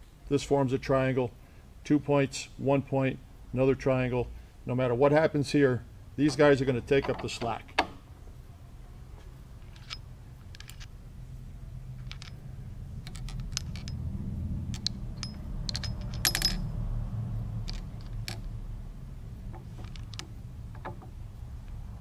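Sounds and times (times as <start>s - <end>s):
low hum: 8.1s - 22.0s
metal parts clicking and clinking: 9.6s - 10.9s, 11.9s - 14.0s, 14.6s - 16.7s, 17.6s - 18.6s, 19.5s - 21.1s.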